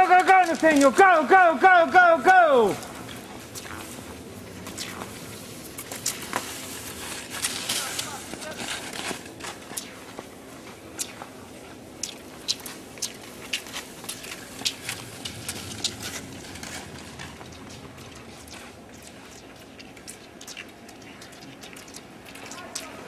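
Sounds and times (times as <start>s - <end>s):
ski poles and skis clicking on snow: 0.0s - 23.0s.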